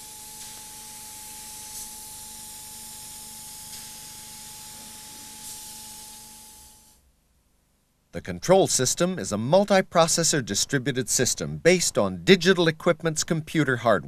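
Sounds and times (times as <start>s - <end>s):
spray gun hissing: 0.2s - 2.4s, 3.6s - 6.9s.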